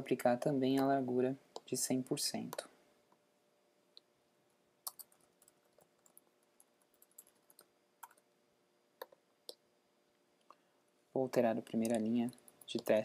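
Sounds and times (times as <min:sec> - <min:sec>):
faint keyboard typing: 0:04.8 - 0:08.3, 0:09.0 - 0:09.6, 0:11.2 - 0:13.0.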